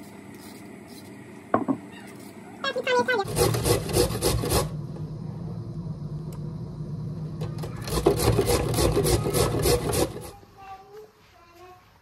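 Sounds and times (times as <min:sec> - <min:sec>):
carrot rasping on a grater: 0:03.2 - 0:04.7, 0:07.8 - 0:10.3.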